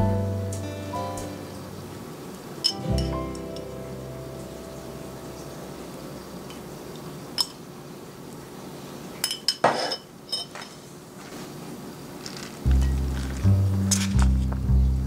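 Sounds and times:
dishes clinking: 0:02.6 - 0:03.7, 0:07.4 - 0:07.6, 0:09.2 - 0:10.9
utensil scraping dish: 0:09.6 - 0:10.7.

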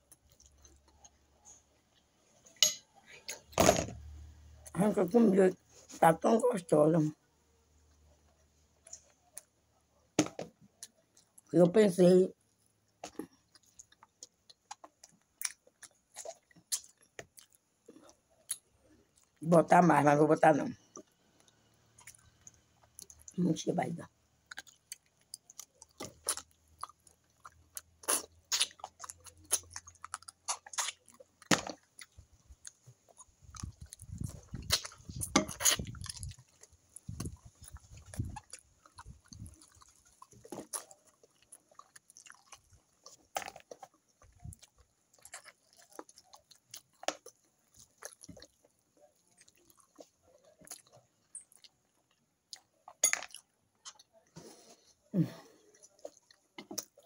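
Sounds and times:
person chewing with mouth clicks: 0:13.0 - 0:19.4, 0:24.4 - 0:57.0.

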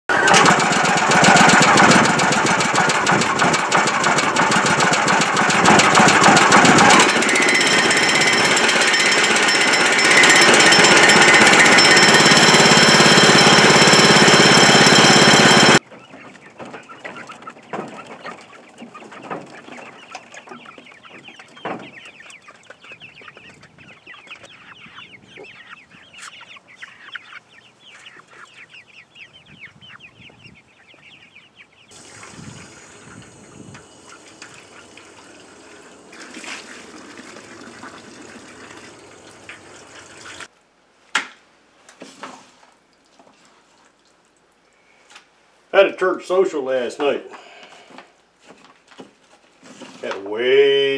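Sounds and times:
hens clucking: 0:00.1 - 0:08.4, 0:09.6 - 0:40.5
gasoline engine running loud: 0:00.1 - 0:15.8, 0:32.0 - 0:40.5.

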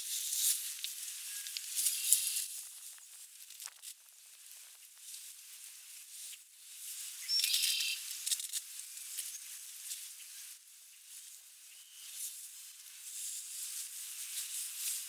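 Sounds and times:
short pitched bird call: 0:07.2 - 0:08.0.

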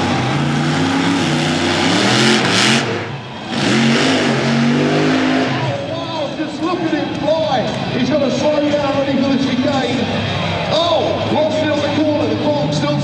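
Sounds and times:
monster truck engine revving: 0:00.0 - 0:07.2.

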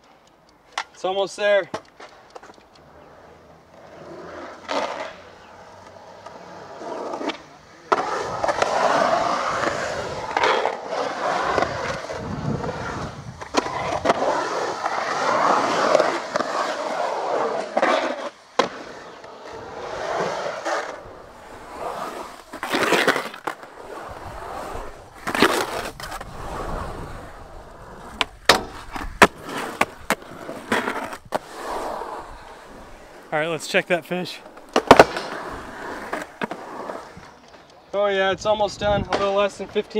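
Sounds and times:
skateboard clacking: 0:00.0 - 0:03.0, 0:33.6 - 0:36.6
skateboard rolling on concrete: 0:00.0 - 0:39.9
skateboard trucks grinding: 0:00.7 - 0:39.9.

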